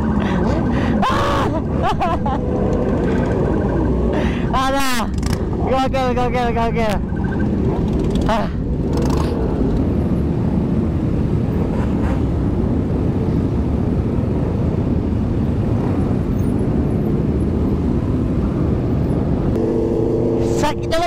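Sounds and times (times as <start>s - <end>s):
wind rushing: 0.0s - 6.1s
road noise: 0.0s - 21.0s.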